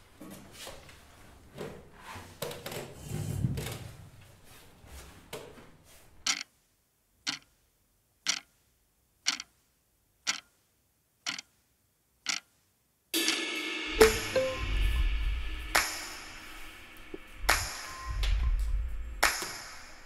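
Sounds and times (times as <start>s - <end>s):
wall clock ticking: 6.2s - 6.6s, 7.2s - 11.6s, 12.2s - 12.6s.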